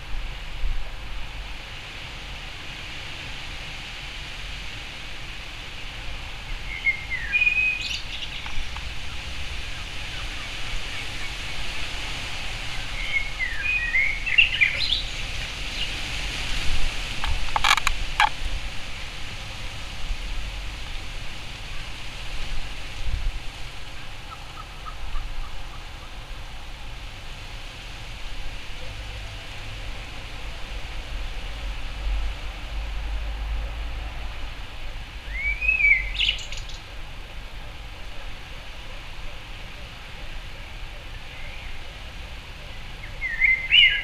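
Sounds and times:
outdoor hiss and low rumble: 0:00.0 - 0:44.0
blackbird warbling song: 0:06.4 - 0:12.0, 0:12.6 - 0:16.0, 0:24.0 - 0:26.2, 0:35.2 - 0:36.9, 0:41.0 - 0:41.9, 0:42.7 - 0:44.0
sharp clicks: 0:17.2 - 0:18.4.

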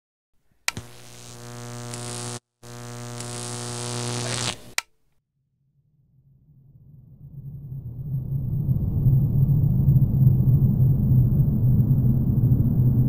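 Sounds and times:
switch click: 0:00.7 - 0:02.3
loud electric buzz: 0:00.7 - 0:04.8
low rumble: 0:05.8 - 0:13.0.

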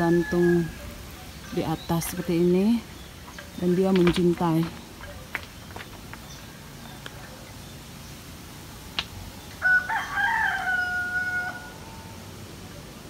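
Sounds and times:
rooster crowing: 0:09.6 - 0:12.3.

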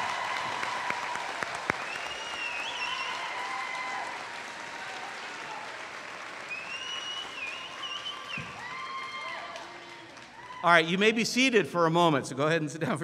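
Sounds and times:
crowd applauding: 0:00.0 - 0:11.0
high wavering whistles: 0:01.8 - 0:03.2, 0:06.5 - 0:08.6.

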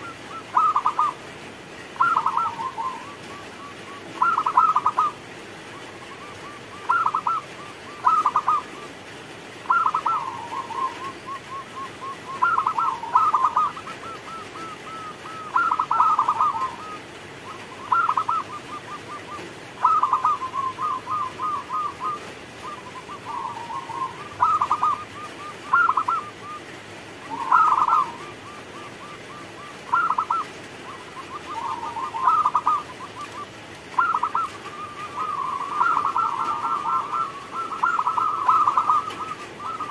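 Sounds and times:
dove cooing song: 0:00.0 - 0:39.9.

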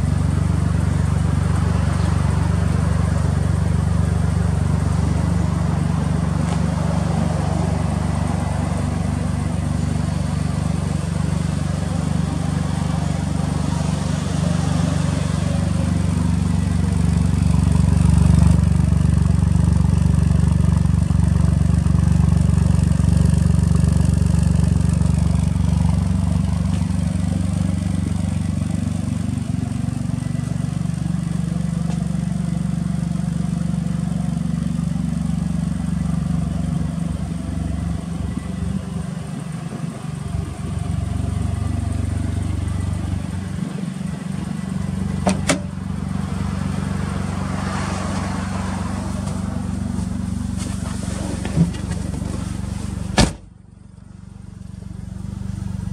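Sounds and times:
car engine idling: 0:00.0 - 0:55.9.

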